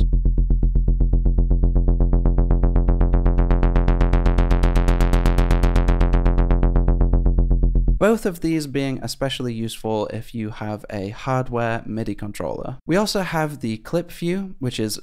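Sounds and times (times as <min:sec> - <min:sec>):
low buzzy pulsing synthesizer note: 0:00.0 - 0:08.1.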